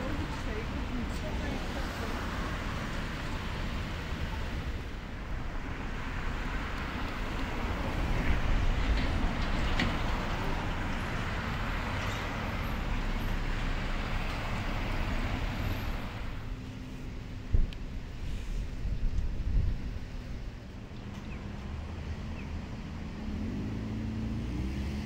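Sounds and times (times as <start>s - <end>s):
road traffic rumble: 0.0s - 25.0s
vehicle passing: 21.4s - 25.0s.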